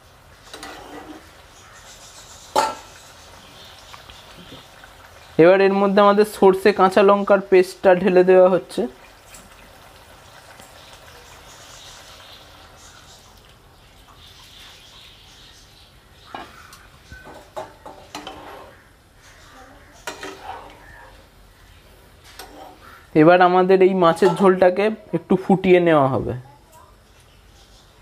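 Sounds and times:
faint sizzle in frying pan: 0:00.0 - 0:25.8
metal spatula scraping pan: 0:00.5 - 0:01.3, 0:17.2 - 0:18.9, 0:20.0 - 0:21.2, 0:22.2 - 0:23.1, 0:24.0 - 0:24.6.

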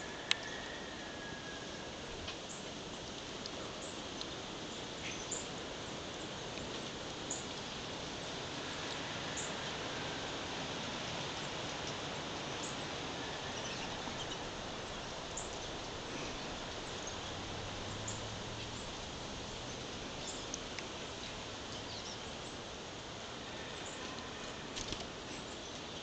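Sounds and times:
steady hiss: 0:00.0 - 0:26.0
songbirds chirping: 0:11.3 - 0:26.0.

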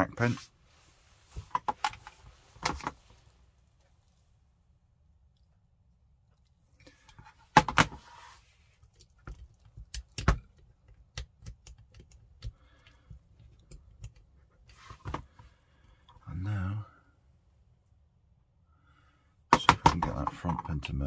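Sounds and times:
small clicks and knocks of parts: 0:08.7 - 0:16.2.

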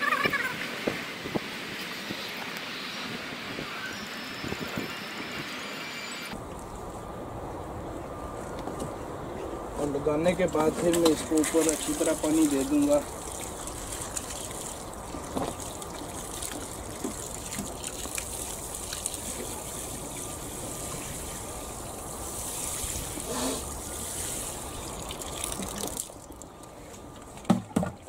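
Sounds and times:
water splashing onto soil: 0:10.6 - 0:20.2, 0:22.3 - 0:26.5.

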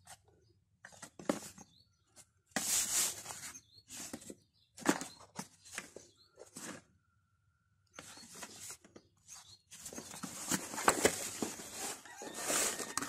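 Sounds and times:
cardboard box scraping on wood: 0:10.1 - 0:13.0.

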